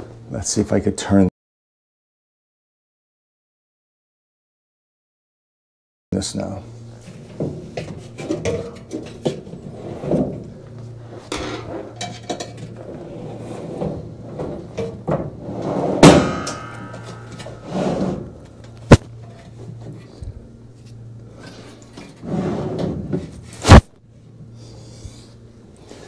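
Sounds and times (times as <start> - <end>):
steady low hum: 6.2 - 26.0
metal clanks and knocks: 13.8 - 19.6.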